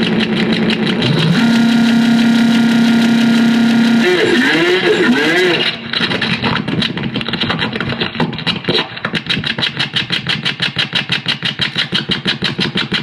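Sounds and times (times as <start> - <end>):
electronic noise pulsing: 0.0 - 8.8.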